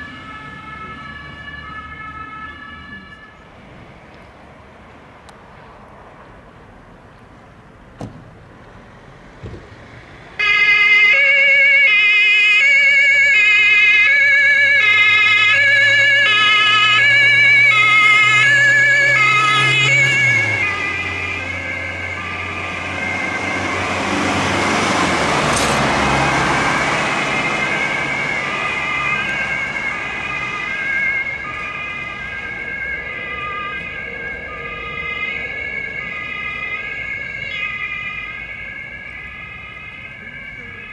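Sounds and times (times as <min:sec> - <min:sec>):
two-tone siren: 0:00.0 - 0:03.4, 0:10.4 - 0:40.9
vehicle engine and tyre noise: 0:00.0 - 0:40.9.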